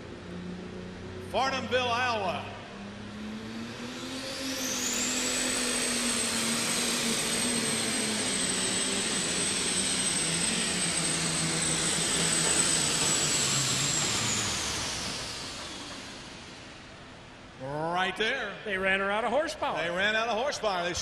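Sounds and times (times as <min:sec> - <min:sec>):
high turbo whistle: 0:02.1 - 0:17.1
diesel tractor engine under load: 0:02.7 - 0:17.5.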